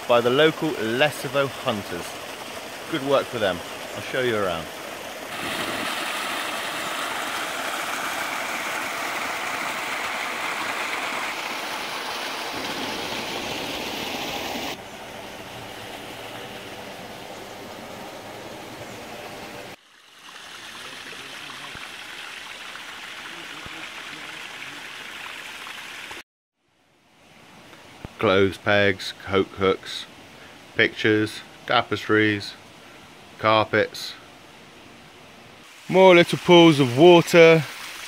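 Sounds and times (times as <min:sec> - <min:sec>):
water gushing from chute: 0:00.0 - 0:26.2, 0:35.6 - 0:38.0.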